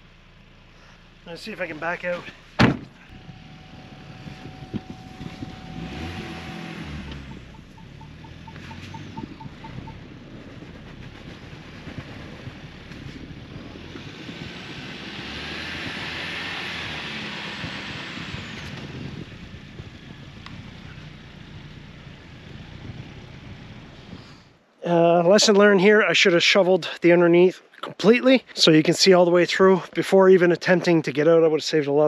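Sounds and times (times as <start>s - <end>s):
car engine running: 0.0s - 24.2s
tyres in snow: 1.3s - 24.4s
short beeps: 3.1s - 10.0s.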